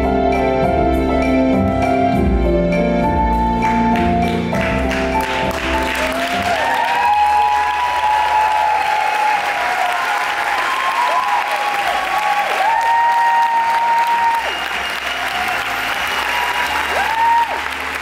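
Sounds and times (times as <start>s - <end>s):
rumba music: 0.0s - 7.8s
audience applauding and cheering: 3.6s - 18.0s.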